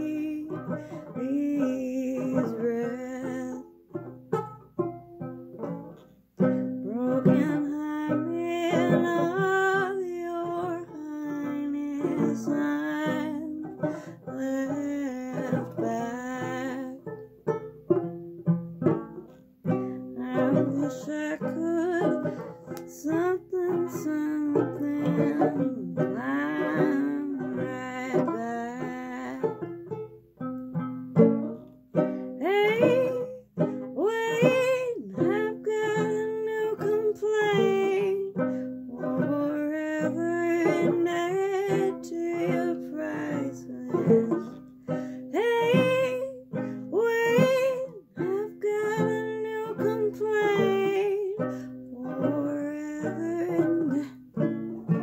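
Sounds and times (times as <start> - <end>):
woman singing: 0.0 - 3.9, 6.4 - 17.2, 19.6 - 29.7, 32.0 - 55.0
banjo plucking: 0.0 - 55.0.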